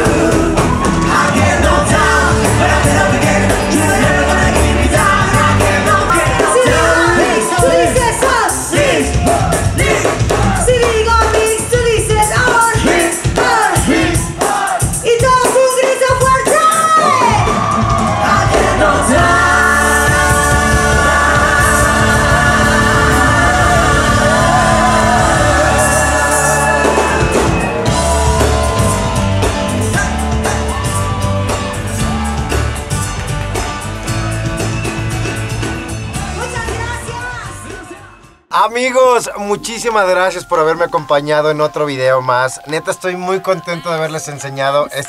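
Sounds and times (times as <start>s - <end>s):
pop-rock song with singer: 0.0s - 32.9s.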